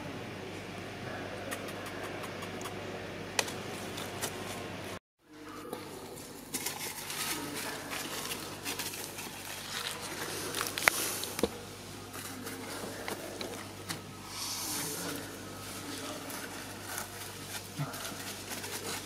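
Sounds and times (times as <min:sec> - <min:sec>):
dry leaves rustling and crackling: 0:05.8 - 0:11.4, 0:14.8 - 0:19.0.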